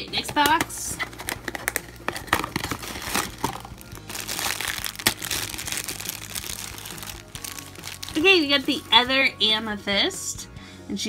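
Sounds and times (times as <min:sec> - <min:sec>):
background music: 0:00.0 - 0:11.0
plastic bag crinkling: 0:01.0 - 0:08.7.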